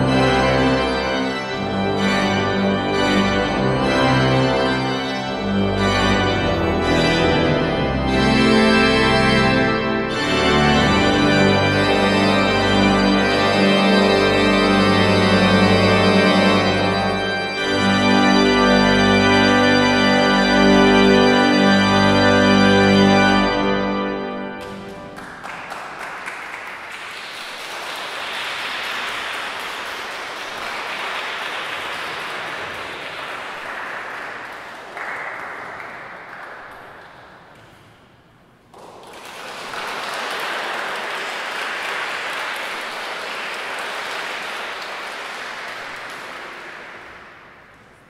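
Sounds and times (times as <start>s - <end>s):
audience applauding: 24.6s - 38.0s, 38.6s - 48.0s.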